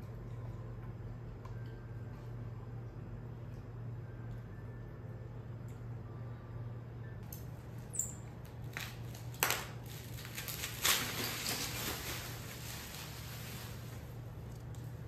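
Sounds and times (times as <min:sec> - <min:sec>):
bubble wrap crinkling: 0:08.4 - 0:15.0.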